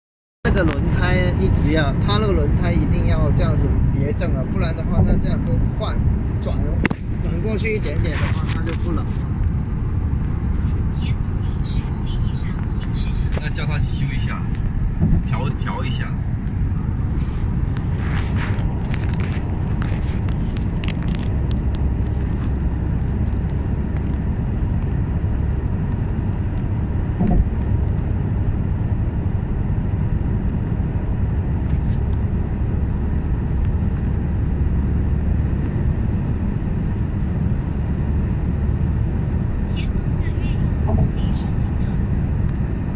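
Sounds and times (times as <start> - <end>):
car road and engine rumble: 0.4 - 42.9
thump: 15.0 - 15.3, 27.2 - 27.5.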